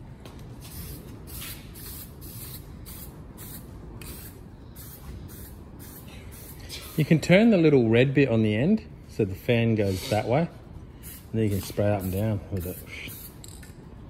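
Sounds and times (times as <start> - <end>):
spray paint cans hissing: 0.6 - 7.2, 9.8 - 10.3, 11.0 - 13.8.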